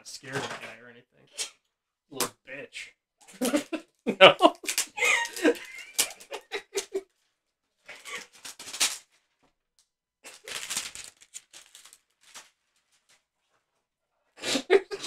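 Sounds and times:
cardboard and cards rustling: 4.5s - 6.4s, 7.9s - 9.4s, 10.3s - 13.3s.

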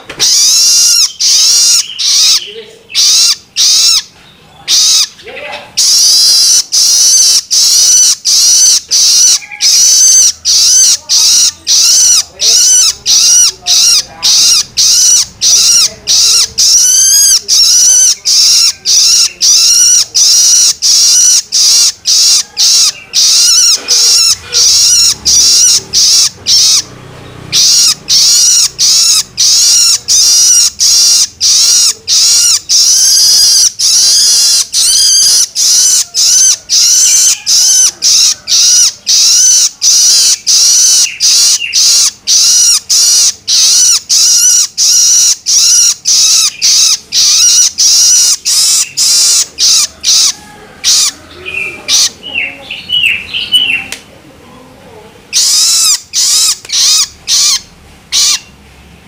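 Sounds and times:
bird begging calls: 0.0s - 54.0s, 55.3s - 58.6s.

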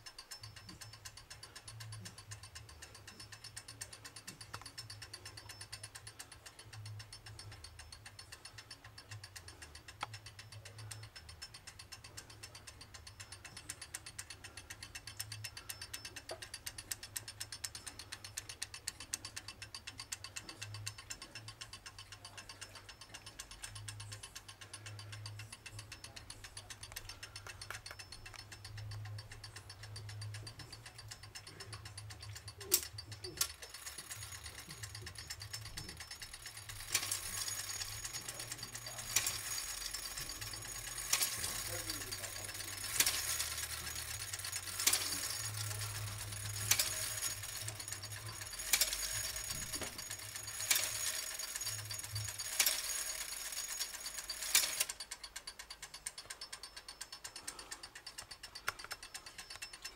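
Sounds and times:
clock ticking: 0.0s - 59.9s
louder clock clicks: 26.0s - 59.9s.

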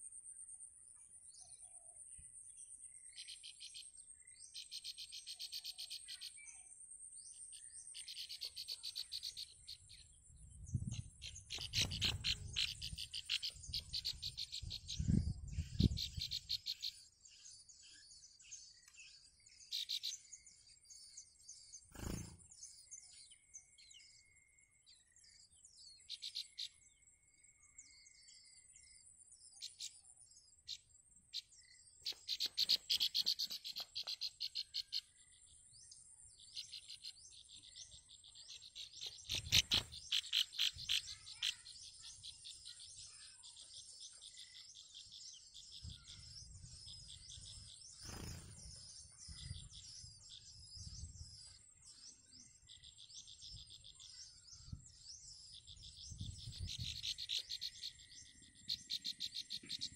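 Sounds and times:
nestling birds chirping: 2.8s - 59.9s.

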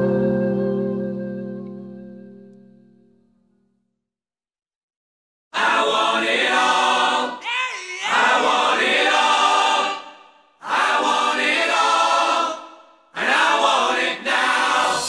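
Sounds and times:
voices singing together: 5.6s - 15.0s.

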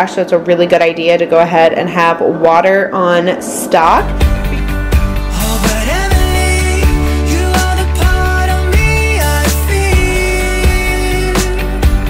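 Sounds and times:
background music with steady beat: 3.8s - 12.0s.

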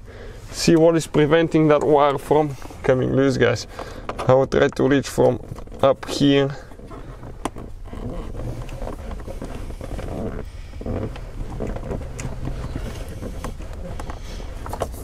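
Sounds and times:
low steady hum: 0.0s - 15.0s
rustling of wiring harness: 0.0s - 15.0s.

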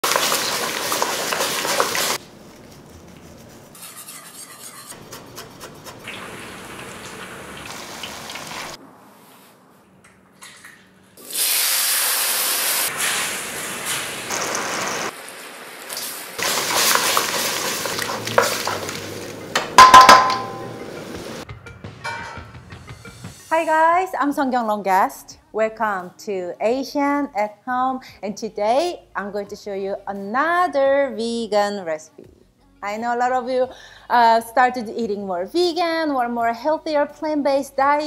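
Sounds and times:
food sizzling in a wok: 0.0s - 2.2s, 6.0s - 8.8s, 11.2s - 21.4s
clatter in a wok: 0.1s - 2.2s
loud sizzling hiss: 11.2s - 19.3s.

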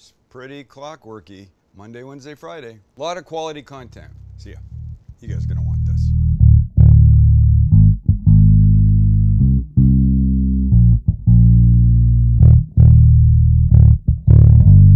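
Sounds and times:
bass guitar playing low notes: 3.8s - 14.9s.

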